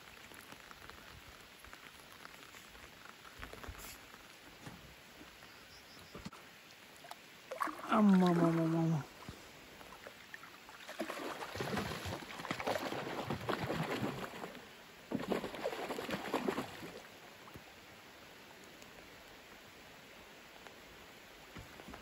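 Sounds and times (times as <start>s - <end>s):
rain hissing on water: 0.0s - 22.0s
net splashing through water: 7.5s - 9.0s, 10.7s - 17.0s.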